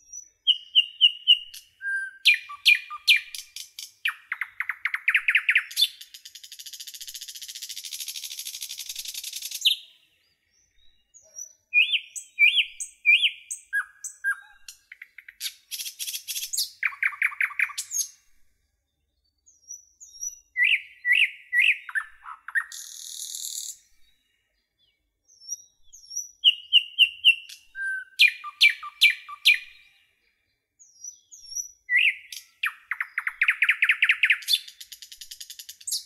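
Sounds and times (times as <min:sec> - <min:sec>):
songbirds chirping and singing: 0:00.0 - 0:36.0.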